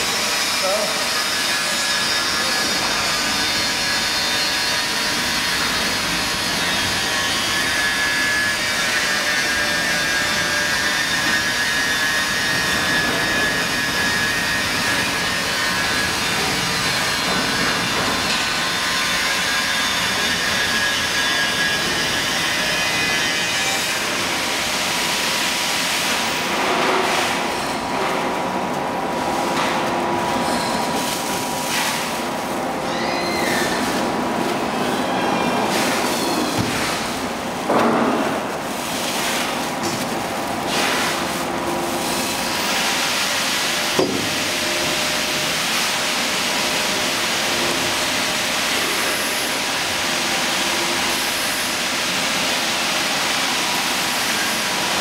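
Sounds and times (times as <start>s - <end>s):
plastic film crinkling: 28.3s - 34.7s, 36.9s - 42.5s.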